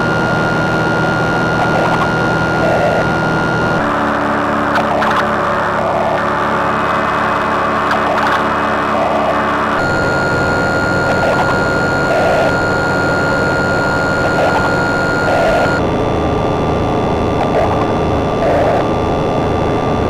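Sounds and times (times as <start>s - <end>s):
loud noisy drone: 0.0s - 20.0s
steady high tones: 9.6s - 15.8s.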